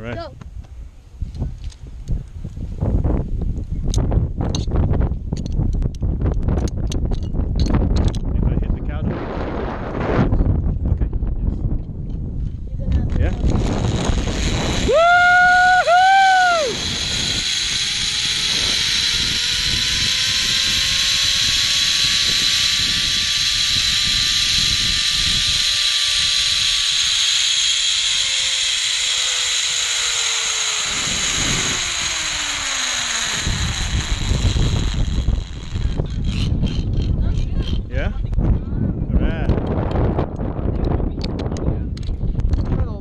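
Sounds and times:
wind rumble on microphone: 0.0s - 43.0s
zipline pulleys hissing and whining: 13.1s - 37.8s.

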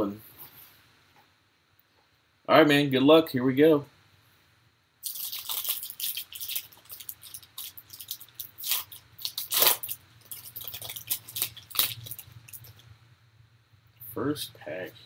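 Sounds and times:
foil pack crinkling and tearing: 5.0s - 12.8s.

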